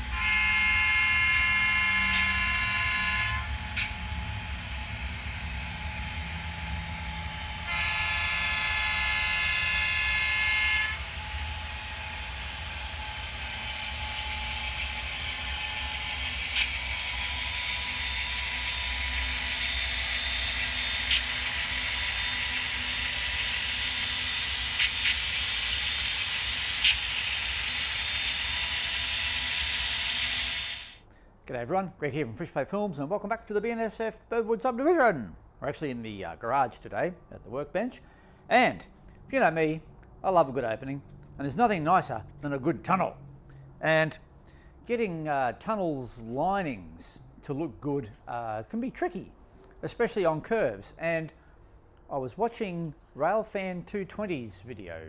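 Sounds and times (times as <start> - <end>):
locomotive horn blasts: 0.0 - 4.6, 7.3 - 19.9
rushing noise: 10.9 - 31.0.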